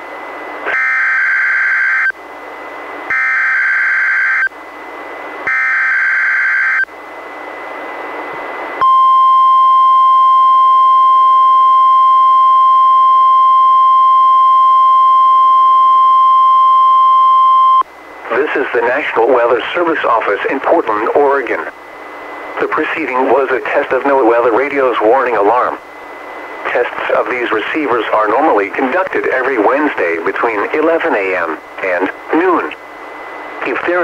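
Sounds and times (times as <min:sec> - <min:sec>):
steady warning alarm tone: 0:00.6 - 0:02.2, 0:03.1 - 0:04.6, 0:05.4 - 0:06.9, 0:08.8 - 0:17.8
radio hiss: 0:18.2 - 0:34.0.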